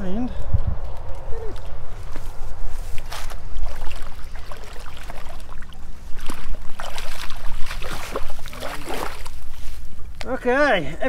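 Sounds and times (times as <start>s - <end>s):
low rumble: 0.0s - 4.8s
fish splashing in water: 3.2s - 9.6s.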